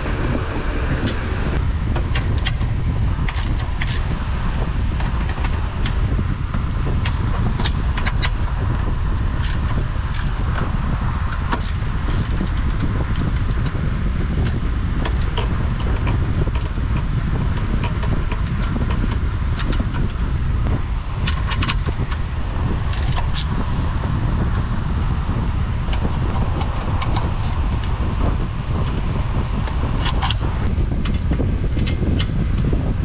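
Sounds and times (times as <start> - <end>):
low rumble: 0.0 - 33.0
hand tools clinking: 6.7 - 7.2.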